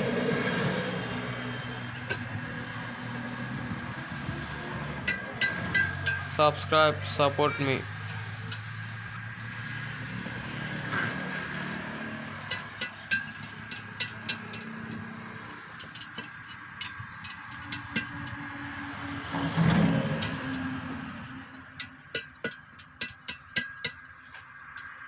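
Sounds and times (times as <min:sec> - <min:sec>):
vehicle passing by: 0:00.0 - 0:22.1
road traffic hum: 0:00.0 - 0:25.0
tyre lever clinking on steel rim: 0:05.1 - 0:06.4, 0:12.4 - 0:18.4, 0:21.7 - 0:25.0.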